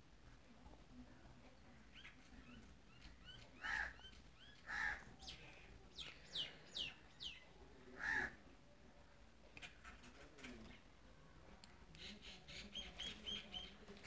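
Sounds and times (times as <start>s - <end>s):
birds chirping: 1.5s - 8.4s, 11.9s - 14.0s
harsh bird calls: 2.9s - 8.4s.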